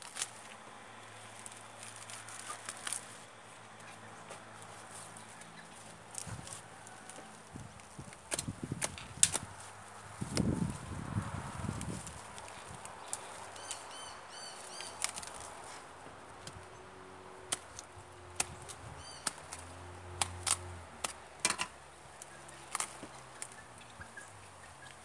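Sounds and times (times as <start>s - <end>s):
bird chirping: 13.0s - 15.3s, 18.5s - 19.4s.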